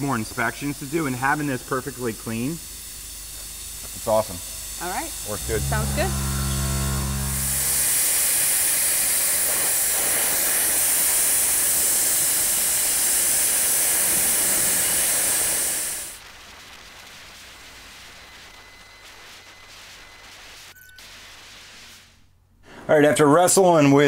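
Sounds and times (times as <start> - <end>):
dry ice blaster hissing: 0.0 - 16.2.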